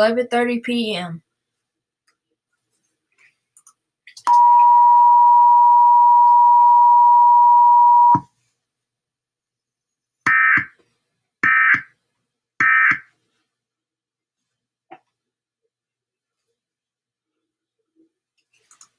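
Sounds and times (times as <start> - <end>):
steady attention tone: 4.3 - 8.2.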